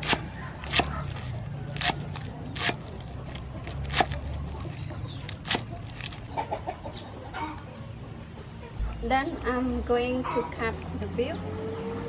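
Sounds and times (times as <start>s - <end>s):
cleaver chopping on wooden board: 0.0s - 1.2s, 1.8s - 2.9s, 3.6s - 4.2s
hens clucking: 0.4s - 9.1s.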